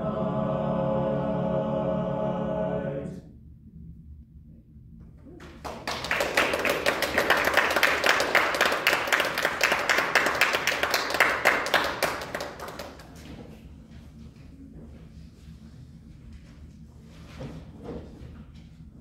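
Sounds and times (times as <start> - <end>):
audience applauding: 5.4 - 13.3.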